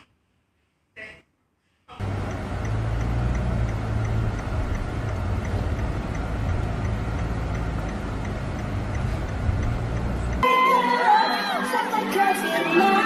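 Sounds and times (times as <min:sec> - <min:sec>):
faint regular ticking: 0:02.0 - 0:10.4
road and engine rumble inside car: 0:02.0 - 0:10.4.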